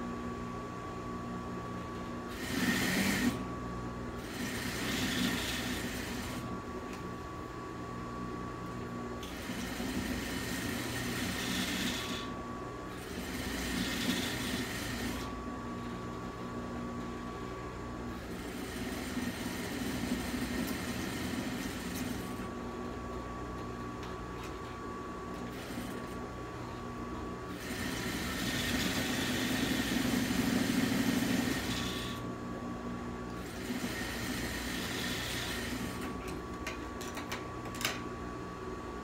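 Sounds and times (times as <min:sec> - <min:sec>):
steady machine hum: 0:00.0 - 0:39.0
sewing machine stitching: 0:02.3 - 0:03.4, 0:04.2 - 0:06.5, 0:13.0 - 0:15.3, 0:27.5 - 0:32.2, 0:33.4 - 0:36.2.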